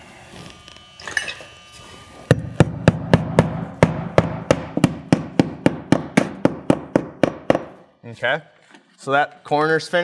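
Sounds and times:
hammer tapping a nail: 0:02.3 - 0:07.8.

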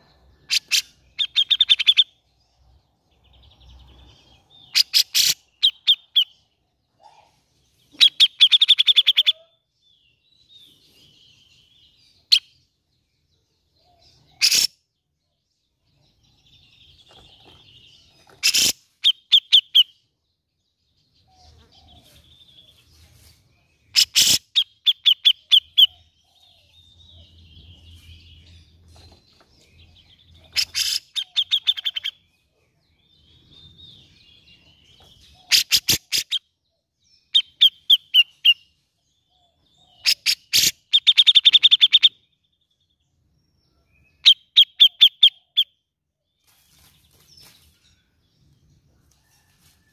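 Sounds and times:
bird harsh repeated calls: 0:00.0 - 0:02.2, 0:04.6 - 0:06.4, 0:07.0 - 0:09.7, 0:14.2 - 0:14.8, 0:18.2 - 0:20.0, 0:23.9 - 0:26.2, 0:30.3 - 0:32.3, 0:35.2 - 0:36.5, 0:37.3 - 0:38.6, 0:39.8 - 0:42.3, 0:44.2 - 0:45.8.

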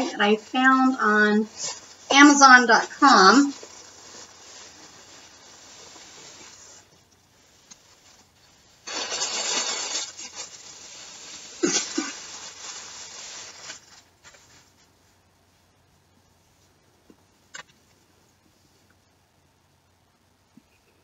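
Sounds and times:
plastic bag rustling and crinkling: 0:01.2 - 0:15.0.

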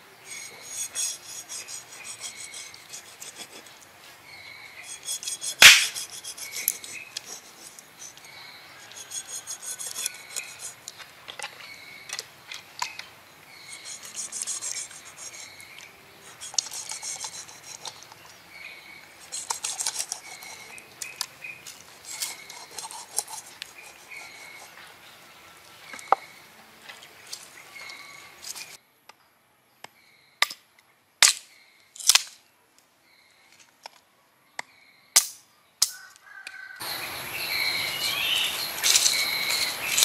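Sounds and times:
knife scraping fish skin: 0:00.3 - 0:03.7, 0:04.9 - 0:08.2, 0:08.8 - 0:10.8, 0:16.3 - 0:18.0, 0:22.0 - 0:24.7.

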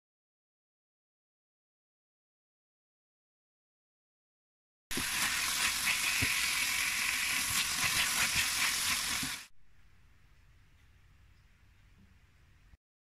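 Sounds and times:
food sizzling in a frying pan: 0:04.9 - 0:09.5.

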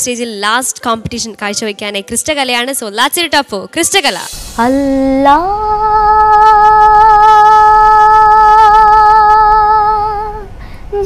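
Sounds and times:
person singing long note: 0:04.6 - 0:11.0.

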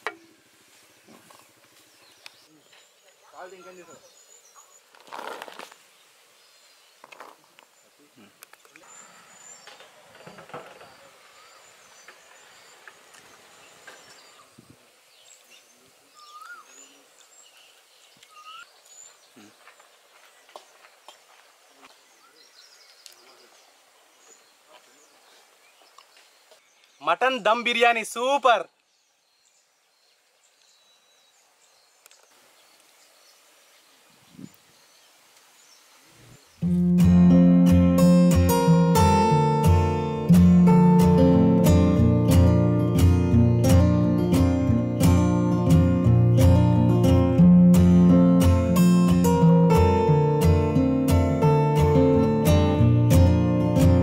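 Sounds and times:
distant birds chirping: 0:00.0 - 0:54.0
faint outdoor ambience: 0:00.0 - 0:54.0
high bird chirps: 0:16.2 - 0:17.0, 0:18.2 - 0:18.8
whistled bird calls: 0:16.2 - 0:17.6, 0:18.2 - 0:18.8.

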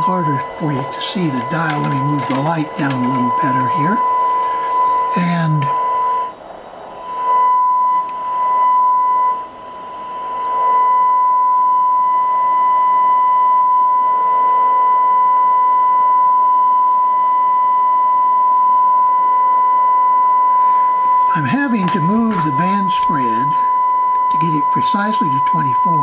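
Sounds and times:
faint radio hiss: 0:00.0 - 0:07.2
radio test tone: 0:00.0 - 0:26.0.

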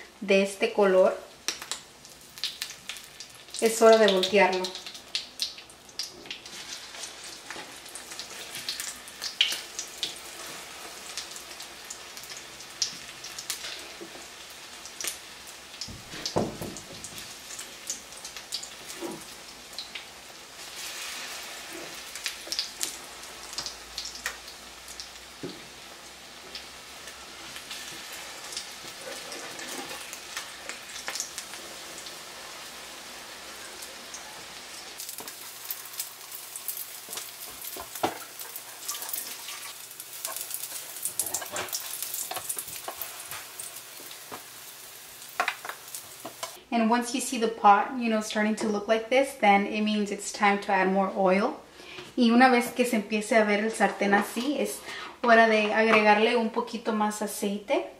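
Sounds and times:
potato cakes sizzling in oil: 0:00.0 - 0:46.6
spatula scraping a pan: 0:27.4 - 0:30.7, 0:37.0 - 0:43.5.

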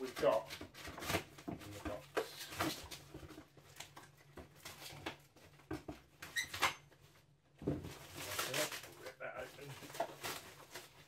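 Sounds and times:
plastic bag rustling and crinkling: 0:00.0 - 0:05.4, 0:07.0 - 0:11.0.

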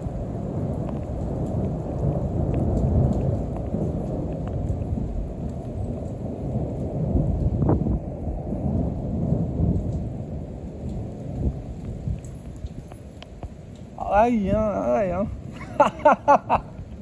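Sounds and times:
rolling thunder: 0:00.0 - 0:17.0.

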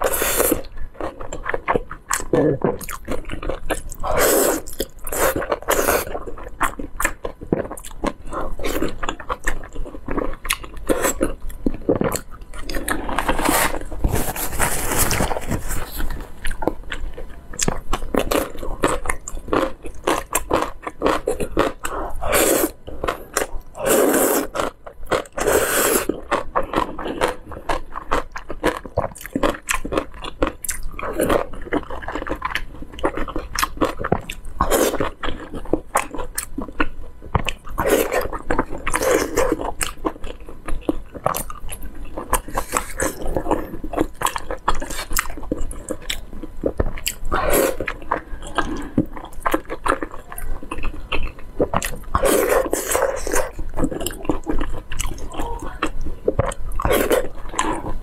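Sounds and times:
chewing with wet mouth clicks: 0:00.5 - 0:04.0, 0:04.6 - 0:13.4, 0:16.0 - 0:22.0, 0:24.4 - 0:58.0
noodle slurping: 0:23.8 - 0:24.5, 0:25.4 - 0:26.1.

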